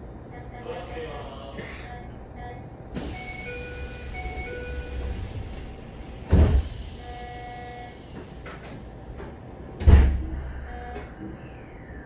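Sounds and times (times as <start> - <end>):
train door chime tones: 3.0 - 5.4
sliding doors shutting thump: 5.5 - 6.8, 8.1 - 10.4.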